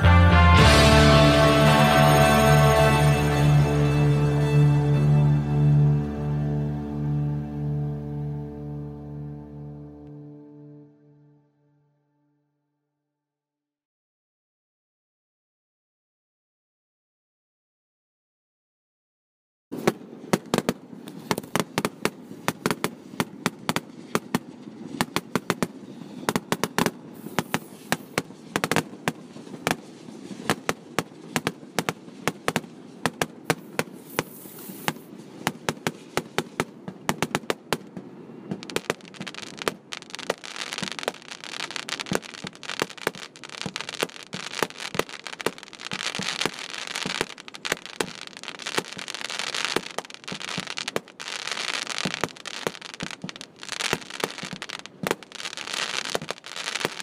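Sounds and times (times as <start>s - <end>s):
fireworks bangs: 0.0s - 4.6s, 19.7s - 57.0s
thick hiss: 25.0s - 57.0s.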